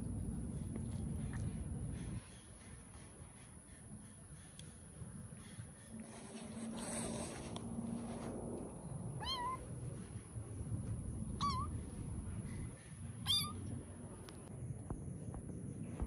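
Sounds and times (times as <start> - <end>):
kitten meowing: 9.2 - 9.6, 11.4 - 11.8, 13.2 - 13.7.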